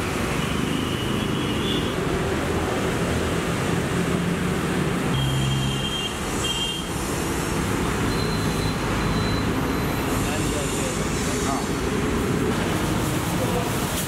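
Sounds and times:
road traffic noise: 0:00.0 - 0:14.0
faint high beeps: 0:08.1 - 0:10.0.

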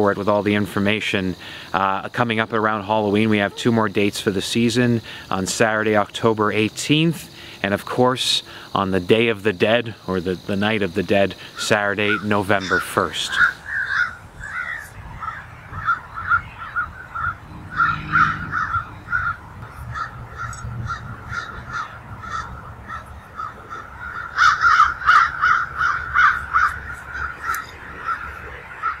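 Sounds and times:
birds calling: 0:11.5 - 0:29.0.

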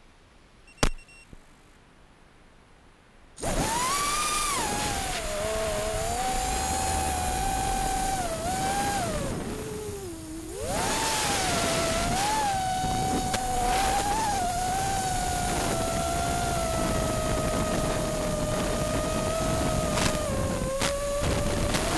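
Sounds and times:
sharp click: 0:00.7 - 0:01.4
drone motors whining: 0:03.4 - 0:21.9.

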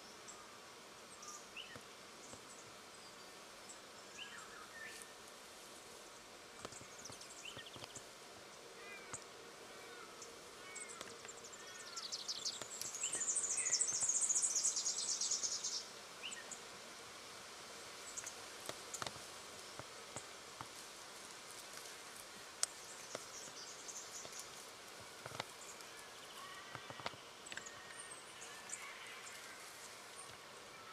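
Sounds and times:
faint ticks and rustles: 0:00.1 - 0:30.9
bird chirps: 0:10.8 - 0:16.4.

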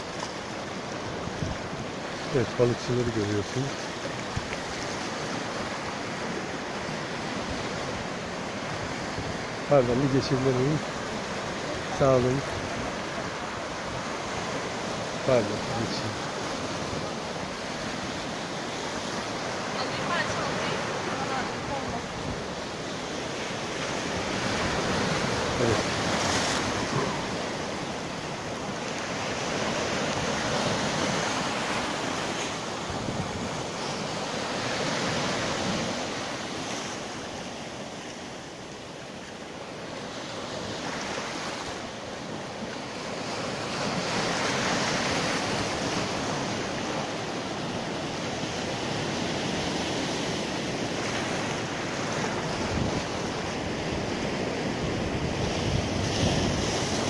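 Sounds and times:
waves breaking over rocks: 0:00.0 - 0:57.0
wind buffeting microphone: 0:01.1 - 0:02.4, 0:52.1 - 0:57.0.

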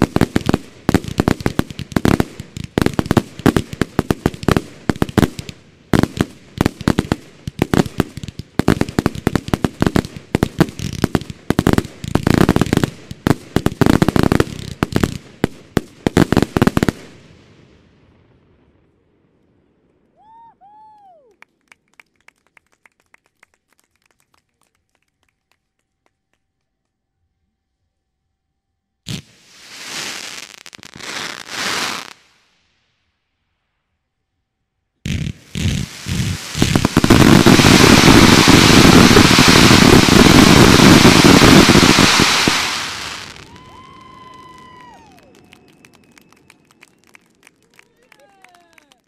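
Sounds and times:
fireworks banging and crackling: 0:00.0 - 0:17.4, 0:29.1 - 0:32.5, 0:35.0 - 0:48.6
scattered hand-clapping: 0:21.4 - 0:27.0, 0:43.7 - 0:49.0.

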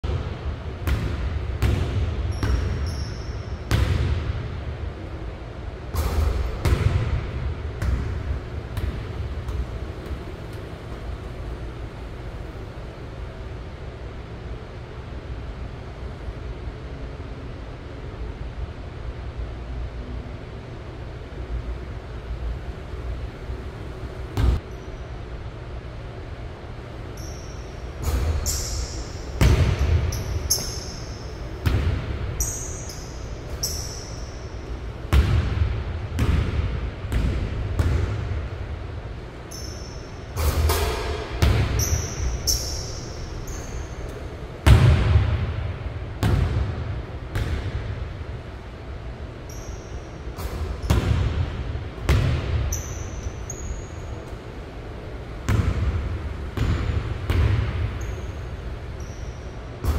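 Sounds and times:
ball striking rim and backboard: 0:00.8 - 0:04.4, 0:05.9 - 0:10.7, 0:24.4 - 0:24.6, 0:28.0 - 0:34.5, 0:35.1 - 0:38.4, 0:39.5 - 0:43.9, 0:44.6 - 0:47.9, 0:49.5 - 0:53.8, 0:55.5 - 0:58.3
basketball bouncing on wooden floor: 0:29.4 - 0:30.3, 0:36.2 - 0:38.2, 0:55.5 - 0:56.0, 0:56.6 - 0:58.2
short high squeaks: 0:41.8 - 0:44.2, 0:52.7 - 0:54.2.

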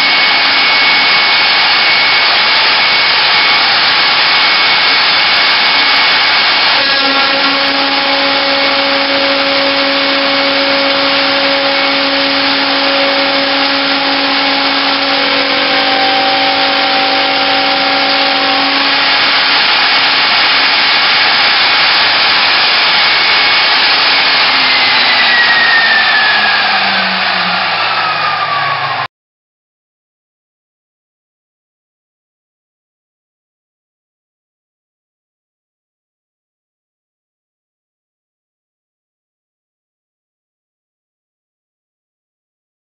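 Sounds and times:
end mill cutting aluminium: 0:00.0 - 0:29.1
router spindle motor whine: 0:00.0 - 0:29.1.

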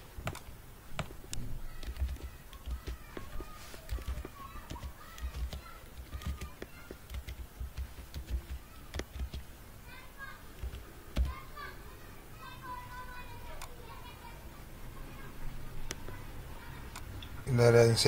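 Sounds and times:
faint distant voices: 0:00.0 - 0:18.0
keyboard keys clicking: 0:00.2 - 0:09.5, 0:10.6 - 0:11.4.

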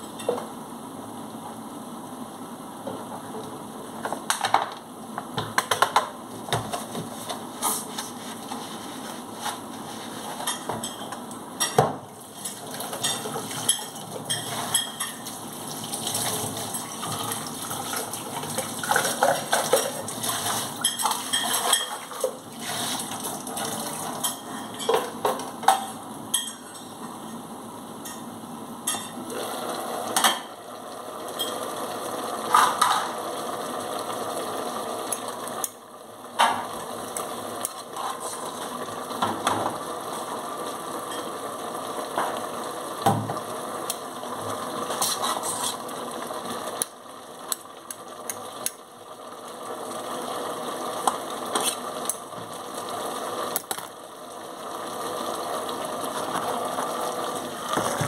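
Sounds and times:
dishes and cutlery clinking: 0:10.4 - 0:15.2, 0:18.8 - 0:20.0, 0:20.8 - 0:22.2, 0:24.2 - 0:27.0
water running and splashing: 0:12.2 - 0:24.2.

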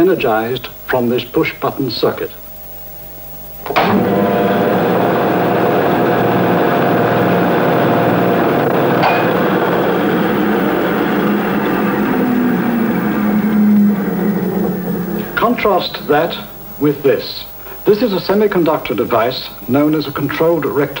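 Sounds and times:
contactor click: 0:03.6 - 0:04.2
electric motor humming: 0:03.7 - 0:17.1.

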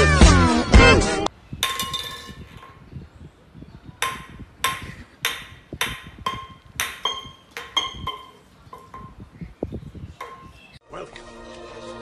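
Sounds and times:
can clinking on concrete floor: 0:01.6 - 0:02.7.

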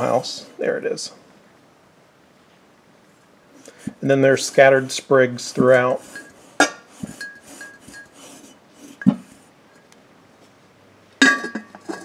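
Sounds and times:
ceramic jar clinking: 0:05.6 - 0:09.9, 0:11.2 - 0:12.0.

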